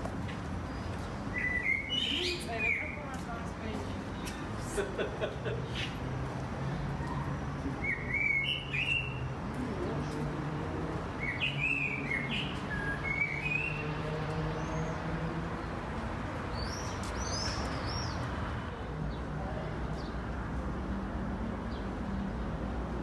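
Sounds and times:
songbird singing: 0.6 - 4.4, 6.7 - 18.4.

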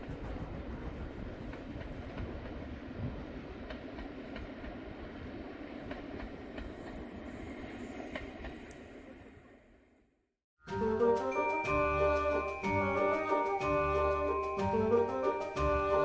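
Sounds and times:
train wheel clacks: 0.0 - 5.0, 5.6 - 7.2
train carriages rumbling: 10.7 - 16.0.

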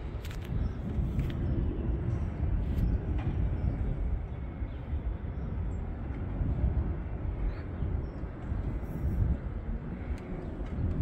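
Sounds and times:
wind buffeting microphone: 0.0 - 11.0
faint clicks: 10.0 - 11.0.

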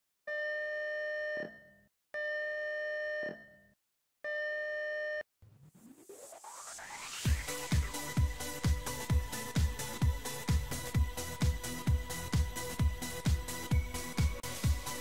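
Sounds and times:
rising electronic sweep: 5.4 - 8.6
electronic music: 5.4 - 15.0.

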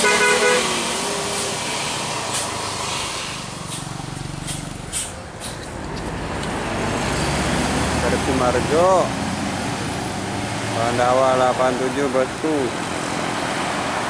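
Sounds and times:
coach diesel engine running: 0.0 - 14.0
air brake hisses: 1.2 - 5.6.

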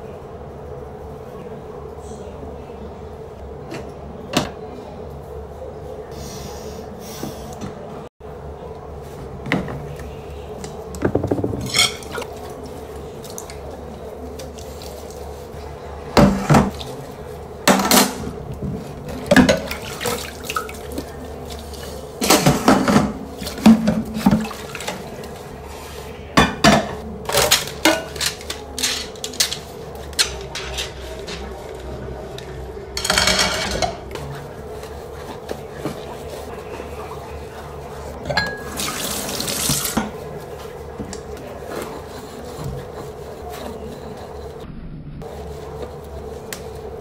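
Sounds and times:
dishes and cutlery clinking: 11.1 - 12.4, 33.0 - 34.3, 38.2 - 38.8.

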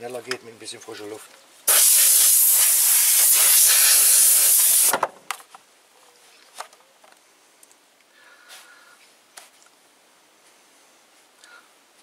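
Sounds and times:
air blow gun hissing: 1.7 - 5.0.

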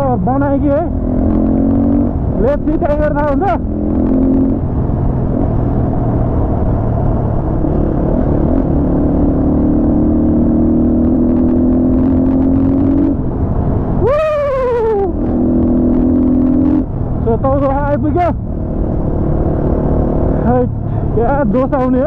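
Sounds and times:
low wind noise: 0.0 - 22.0
loud rising and falling tone: 0.9 - 13.3.

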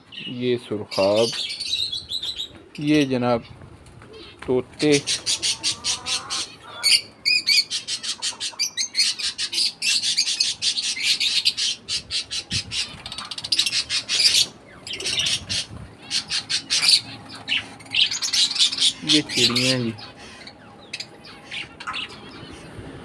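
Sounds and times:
parrots chattering: 3.4 - 22.8.

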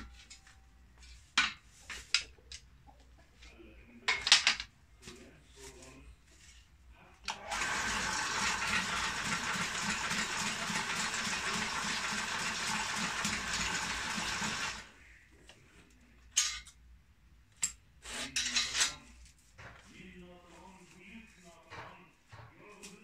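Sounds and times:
broom-stitching machine running: 7.3 - 14.9.

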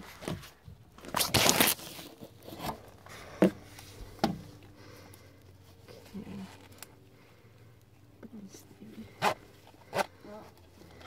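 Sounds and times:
loud tearing rasp: 1.1 - 2.1.

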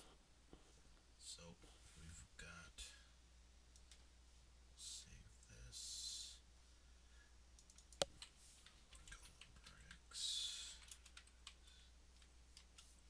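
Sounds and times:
keyboard typing: 7.6 - 10.0, 10.8 - 12.9.

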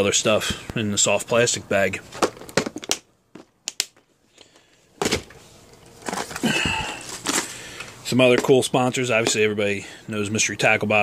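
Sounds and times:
scraping and rustling: 5.0 - 8.6.

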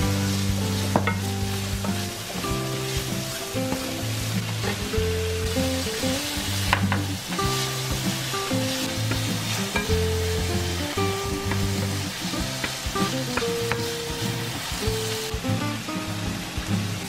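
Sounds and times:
food sizzling in frying pan: 0.0 - 17.0
soft background music: 0.0 - 17.0
wooden spatula knocking pan: 0.3 - 4.0, 6.6 - 8.3.

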